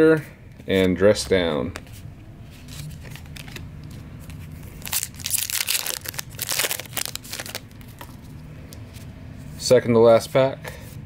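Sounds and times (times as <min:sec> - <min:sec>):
foil wrapper crinkling and tearing: 0:04.7 - 0:08.2.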